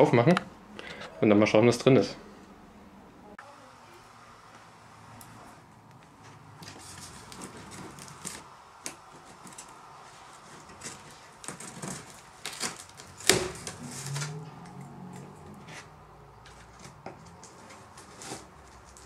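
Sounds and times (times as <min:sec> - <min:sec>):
cardboard scratching and rustling: 0:06.6 - 0:08.5, 0:09.1 - 0:14.4, 0:15.1 - 0:19.0
packing tape peeling: 0:06.6 - 0:15.9.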